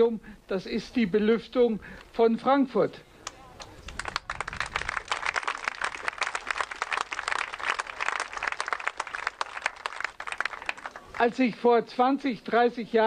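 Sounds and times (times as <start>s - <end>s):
crowd applauding: 3.6s - 11.3s.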